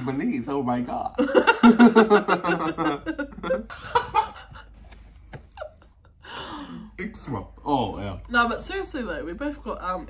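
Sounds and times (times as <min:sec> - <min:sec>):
man and woman laughing: 0:01.2 - 0:06.6.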